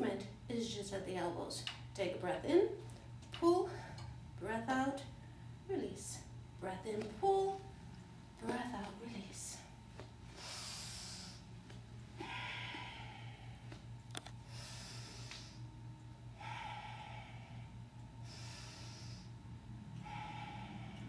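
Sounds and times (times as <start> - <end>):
steady low hum: 0.0 - 21.0
woman breathing rhythmically: 5.2 - 5.7, 9.4 - 21.0.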